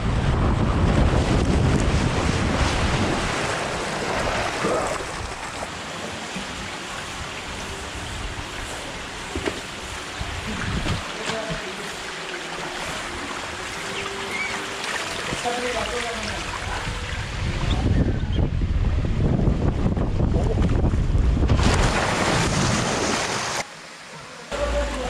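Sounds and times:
wind buffeting microphone: 0:00.0 - 0:05.5, 0:10.1 - 0:11.1, 0:16.5 - 0:22.8
water rushing down a slide: 0:00.1 - 0:18.1, 0:20.3 - 0:25.0.

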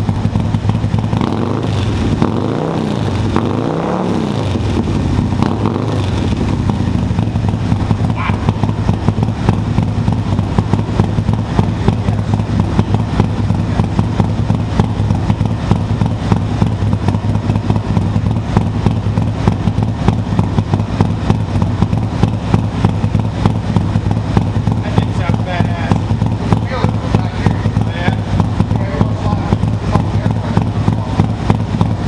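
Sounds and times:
motorcycle engine idling: 0:00.0 - 0:32.0.

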